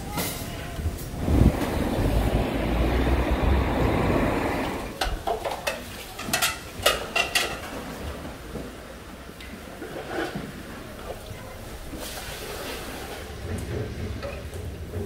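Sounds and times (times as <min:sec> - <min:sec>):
low rumbling noise: 0:00.8 - 0:05.0.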